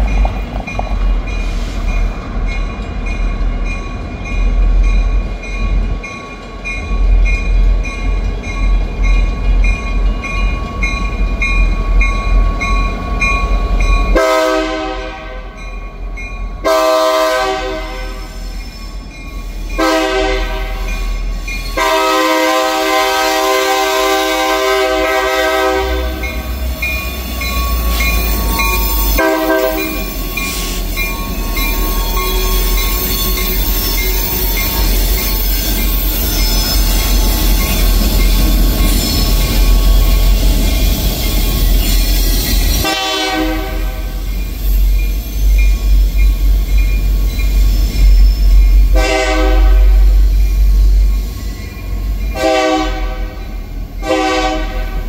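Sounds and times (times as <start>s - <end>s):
crossing bell ringing: 0.0s - 55.0s
diesel locomotive rumbling: 0.0s - 55.0s
locomotive air horn: 14.2s - 15.6s, 16.6s - 18.4s, 19.8s - 26.4s, 29.2s - 30.8s, 42.8s - 44.2s, 48.9s - 50.2s, 52.4s - 53.4s, 54.0s - 55.0s.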